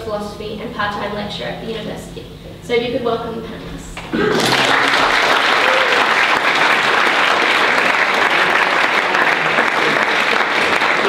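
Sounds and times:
audience applause: 4.0s - 11.0s.

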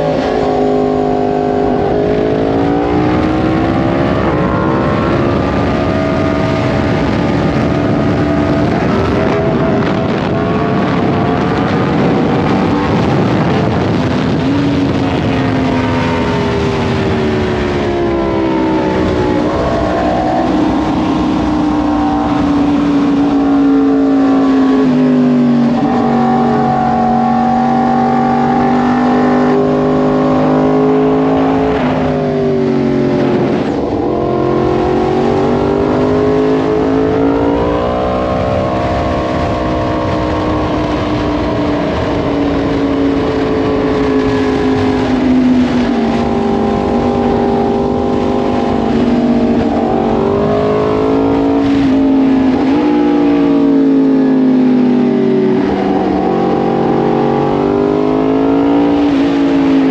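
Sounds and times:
motorcycle engine revving: 0.0s - 59.9s
wind on microphone: 0.0s - 59.9s.

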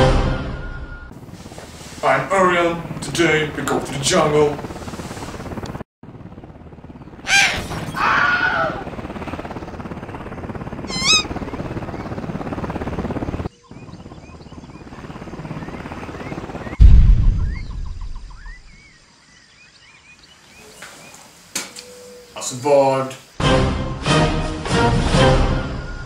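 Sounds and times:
helicopter rotor pulsing: 1.1s - 16.9s
birds chirping: 6.9s - 8.2s, 10.8s - 16.8s, 17.4s - 23.4s
heavy low boom: 16.8s - 18.8s.

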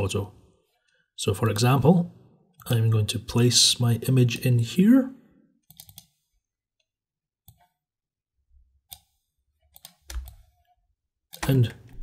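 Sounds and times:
computer mouse clicks: 5.6s - 6.2s, 7.4s - 7.8s, 8.9s - 10.6s.

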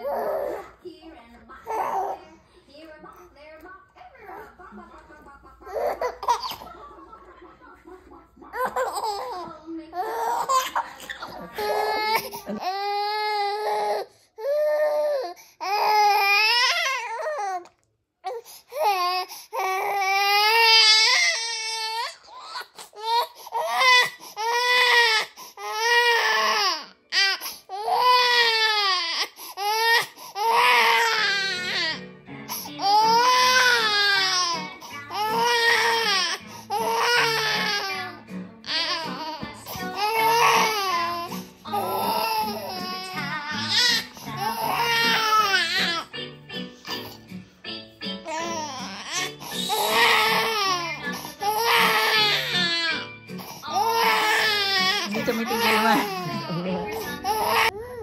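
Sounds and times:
infant crying: 0.0s - 0.7s, 10.0s - 17.7s, 18.3s - 46.1s, 48.3s - 58.0s
soft background music: 0.0s - 17.6s, 18.4s - 58.0s
infant laughing: 5.6s - 6.8s, 8.5s - 13.8s.

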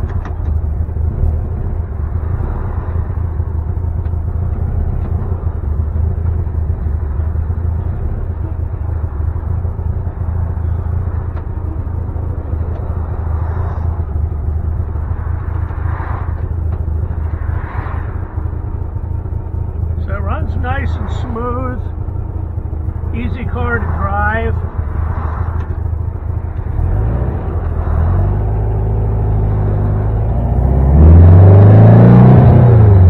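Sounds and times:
car engine drone from inside cabin: 0.0s - 33.0s
road noise: 0.0s - 33.0s.

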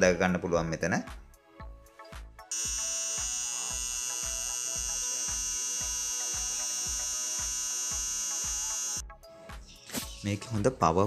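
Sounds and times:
background music with beat: 0.8s - 5.9s, 7.6s - 11.0s
hair trimmer buzzing: 2.5s - 9.0s.

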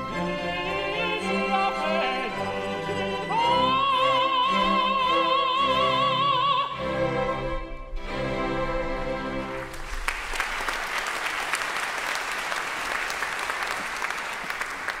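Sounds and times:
audience applauding: 9.4s - 15.0s.

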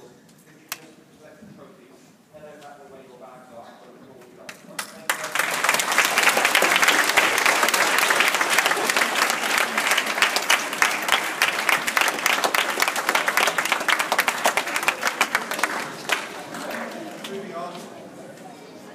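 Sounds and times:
children applauding: 4.8s - 17.4s.

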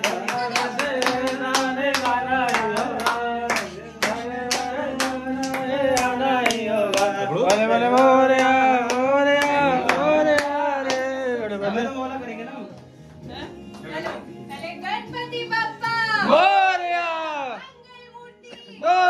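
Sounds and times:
people clapping to a beat: 0.0s - 11.4s
devotional singing: 0.0s - 12.8s.

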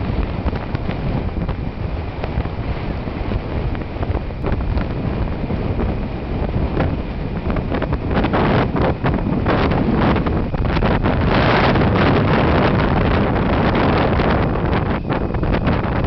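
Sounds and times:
heavy surf breaking on beach: 0.0s - 16.0s
wind buffeting microphone: 0.0s - 16.0s.

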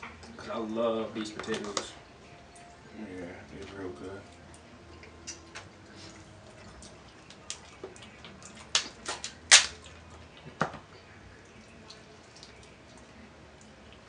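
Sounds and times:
crab legs cracking: 7.2s - 10.0s.

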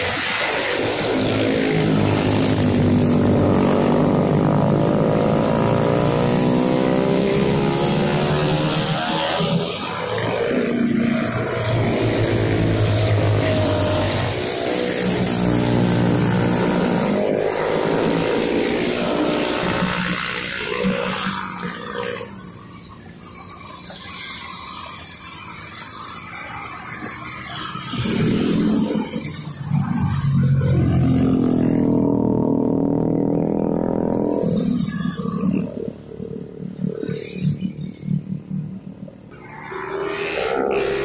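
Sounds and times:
motorcycles and scooters passing: 0.0s - 41.0s
car passing: 39.3s - 41.0s.

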